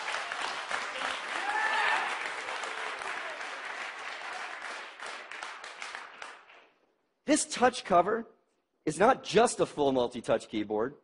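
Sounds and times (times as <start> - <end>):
audience applauding: 0.0 - 6.7
faint cheers: 1.1 - 3.6.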